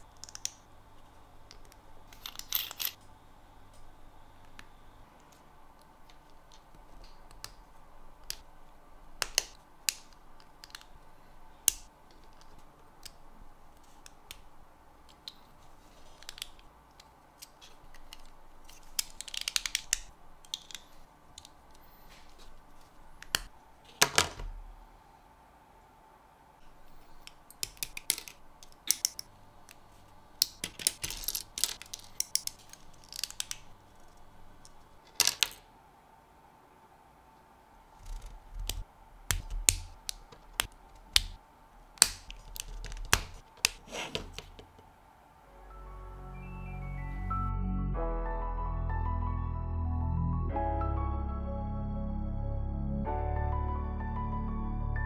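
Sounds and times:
plastic parts clicking and snapping: 0:00.0 - 0:00.6, 0:09.2 - 0:11.0, 0:16.0 - 0:21.8, 0:27.2 - 0:29.8, 0:30.4 - 0:35.6, 0:38.0 - 0:41.4, 0:42.0 - 0:44.8
faint steady hum: 0:00.0 - 0:48.0.

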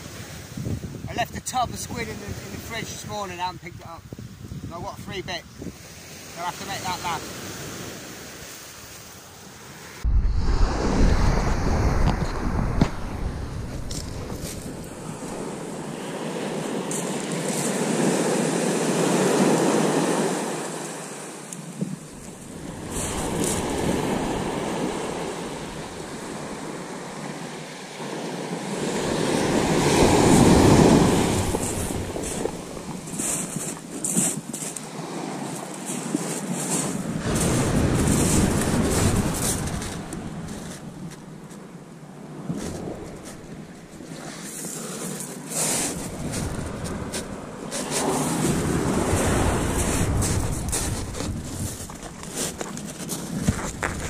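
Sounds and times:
small waves breaking on beach: 0:00.0 - 0:54.0
low rumble: 0:10.0 - 0:14.9
fishing gear rustling and knocking: 0:31.1 - 0:41.2, 0:49.8 - 0:54.0.

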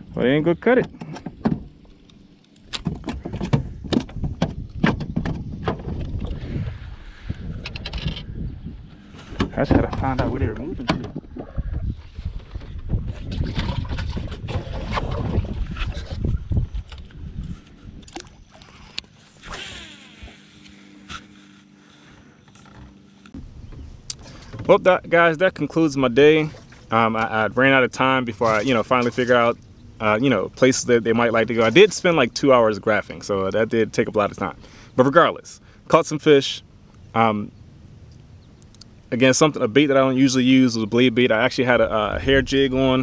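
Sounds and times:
trolling motor hum: 0:00.0 - 0:43.0.

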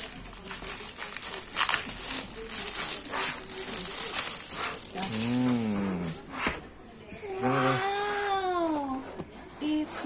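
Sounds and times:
plastic wrapping crinkling: 0:00.0 - 0:06.2.

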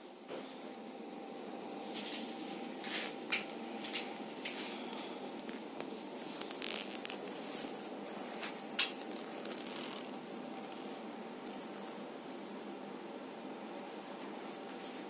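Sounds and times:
room hum: 0:00.0 - 0:15.0
glove rustles: 0:04.1 - 0:10.7.

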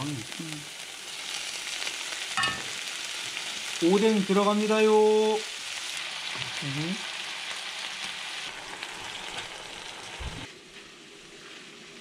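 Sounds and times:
food sizzling in a frying pan: 0:00.0 - 0:12.0.

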